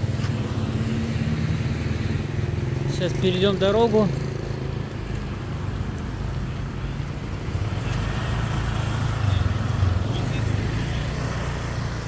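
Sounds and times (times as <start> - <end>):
traffic low rumble: 0.0 - 12.0.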